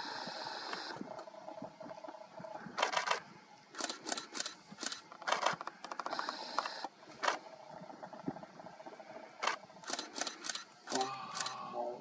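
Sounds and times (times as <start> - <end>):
camera shutters firing: 2.8 - 3.2, 3.8 - 7.4, 9.4 - 11.6.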